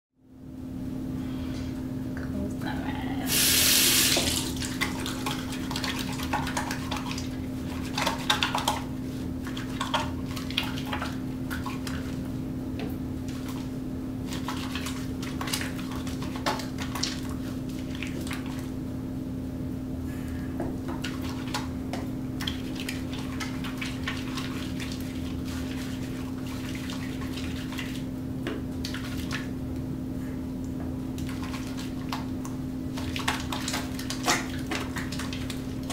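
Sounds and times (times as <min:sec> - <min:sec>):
steady low hum: 0:00.2 - 0:35.9
tap water running: 0:03.3 - 0:07.3
hands lathering soap: 0:13.2 - 0:18.7, 0:22.4 - 0:28.1, 0:28.7 - 0:29.6, 0:31.1 - 0:35.9.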